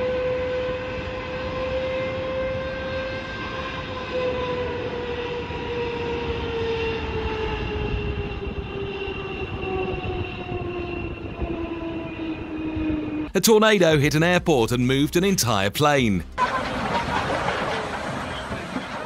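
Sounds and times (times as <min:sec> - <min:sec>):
jet engines running: 0:00.0 - 0:13.4, 0:16.4 - 0:19.0.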